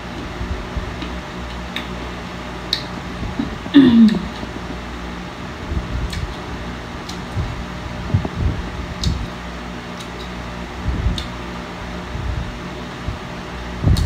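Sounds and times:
electric fan humming: 0.0s - 14.0s
light clicks from eating: 9.0s - 9.3s, 10.0s - 10.4s, 11.1s - 11.4s.

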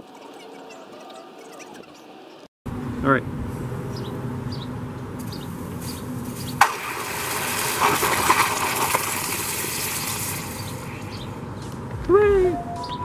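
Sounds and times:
hot metal sizzling in water: 6.2s - 11.0s.

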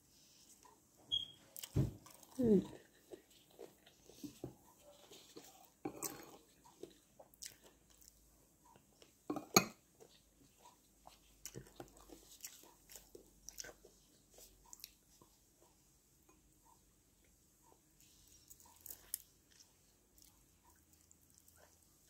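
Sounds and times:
wet chewing and lip-smacking: 5.4s - 9.2s, 10.0s - 15.3s, 18.0s - 21.9s.

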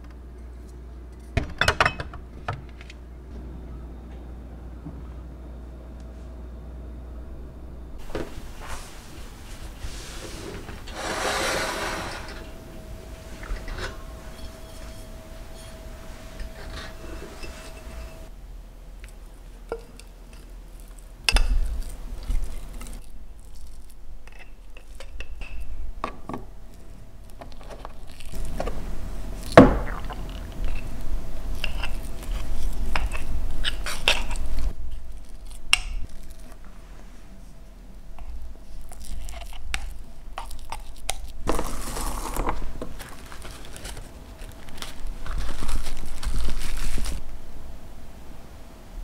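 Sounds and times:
metal spoon scraping glass jar: 13.4s - 18.3s.

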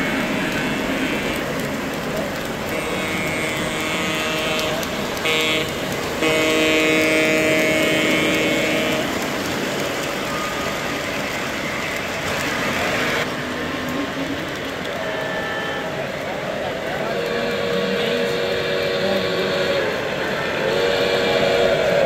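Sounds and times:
model locomotive horn blasts: 2.6s - 9.6s, 14.9s - 16.2s, 16.9s - 22.0s.

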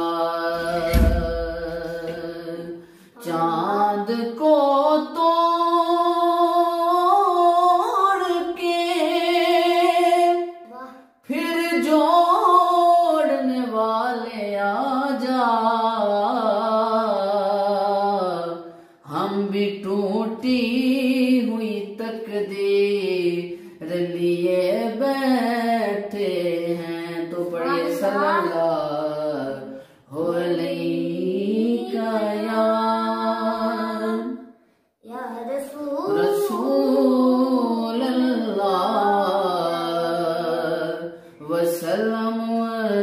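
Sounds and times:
person singing unaccompanied: 0.0s - 34.4s, 35.1s - 43.0s.

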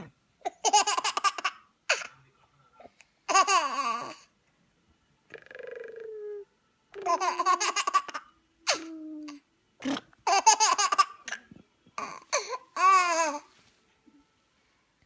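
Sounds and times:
baby laughing: 0.4s - 2.1s, 3.3s - 4.2s, 7.0s - 9.0s, 10.2s - 11.4s.

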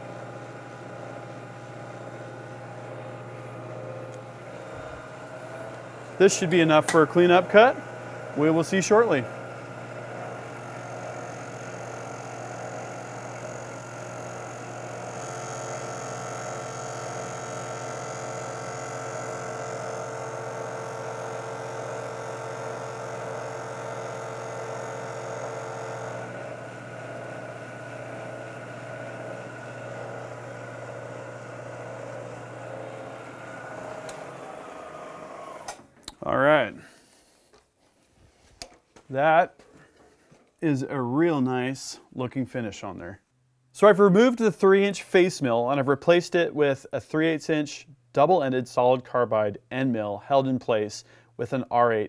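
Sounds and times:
milling machine motor hum and whine: 0.0s - 35.8s.

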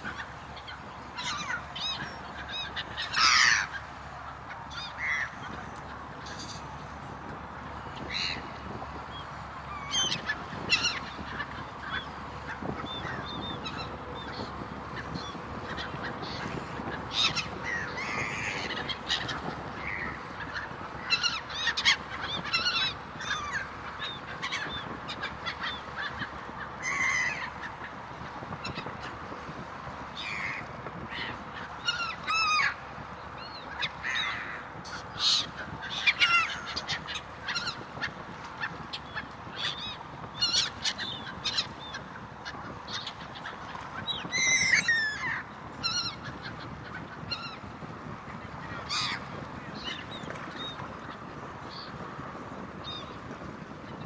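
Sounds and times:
ferry engine rush and hum: 0.0s - 54.0s
gulls calling: 0.0s - 54.0s.

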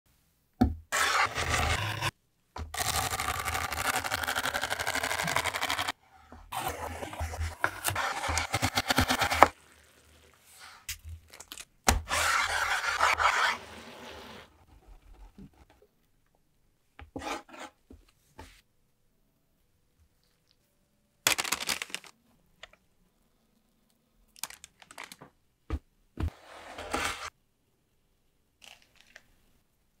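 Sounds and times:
food crunching and crinkling: 24.3s - 25.2s, 28.6s - 29.4s.

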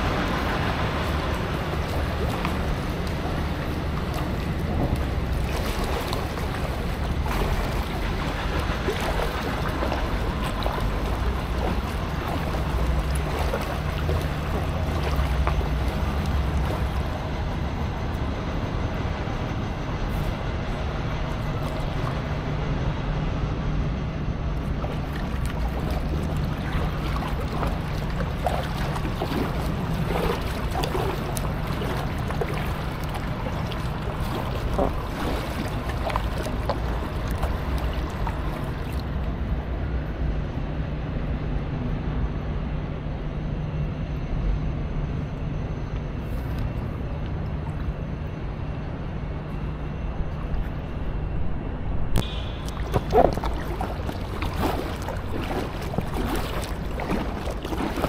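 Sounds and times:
paddle splashes: 0.0s - 17.7s, 21.3s - 22.4s, 24.6s - 39.4s, 52.2s - 58.0s
water moving against raft: 0.0s - 18.0s, 24.6s - 39.4s, 52.2s - 58.0s
steady low hum: 0.0s - 58.0s.

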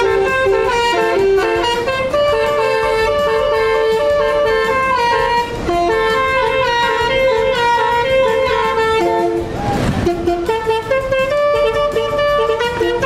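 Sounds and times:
car horn playing a melody: 0.0s - 13.0s
brief rush of noise: 9.5s - 10.2s.

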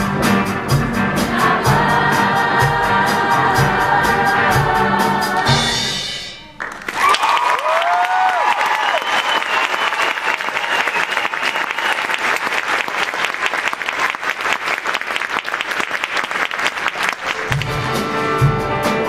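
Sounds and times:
band music with bass: 0.0s - 6.9s, 17.2s - 19.0s
choir singing: 1.0s - 6.6s
audience applauding: 6.6s - 18.0s.

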